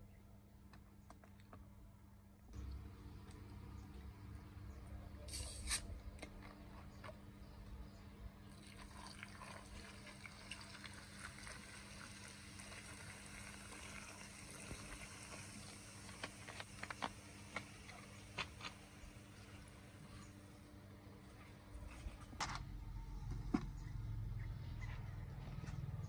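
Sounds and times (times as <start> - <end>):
bottle cap twisted open hiss: 5.3 - 5.9
cola fizzing: 8.5 - 19.6.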